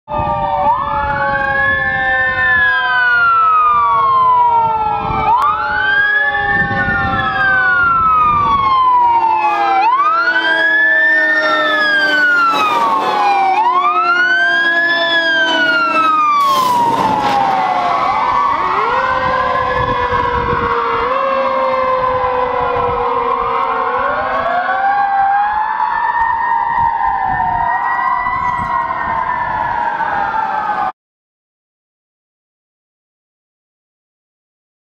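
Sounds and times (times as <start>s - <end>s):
fire truck sirens wailing: 0.1s - 31.0s
truck engines: 0.2s - 30.9s
rush of passing vehicle: 9.9s - 20.6s.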